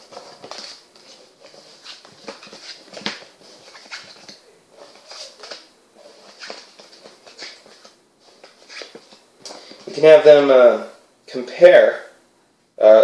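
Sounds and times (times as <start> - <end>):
playing cards clicking and rustling: 0.0 - 10.0.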